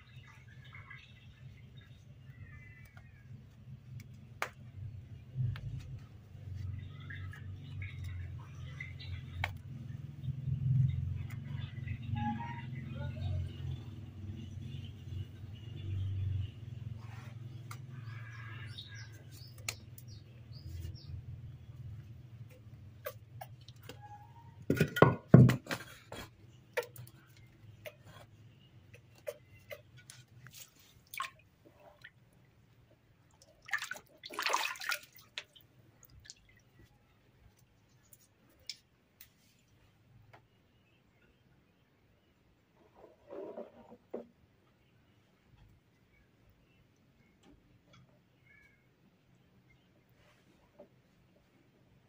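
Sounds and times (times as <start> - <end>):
water dripping: 23.0 - 24.1, 28.9 - 32.3, 33.2 - 36.9
water splashing in a tub: 29.4 - 32.3, 33.2 - 36.9.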